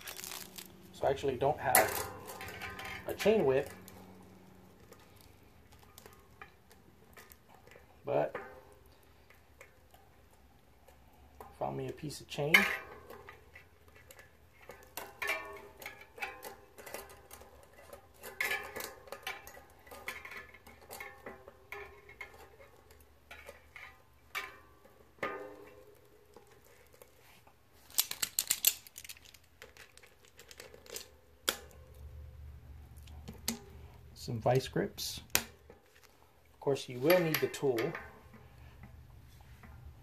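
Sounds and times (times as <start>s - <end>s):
chain rattling against metal cogs: 0.0s - 8.8s, 27.9s - 31.2s, 36.6s - 38.4s.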